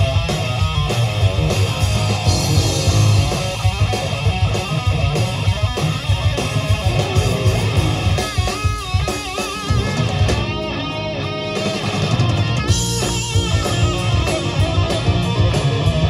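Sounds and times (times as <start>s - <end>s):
bass guitar: 0.0s - 16.0s
distorted electric guitar: 0.0s - 16.0s
drums: 0.0s - 16.0s.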